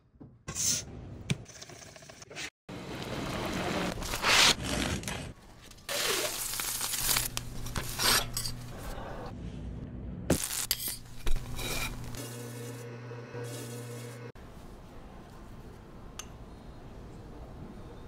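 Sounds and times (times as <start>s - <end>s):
food handling rustling and crunching: 4.0s - 8.8s
knife scraping toasted bread: 10.7s - 12.1s.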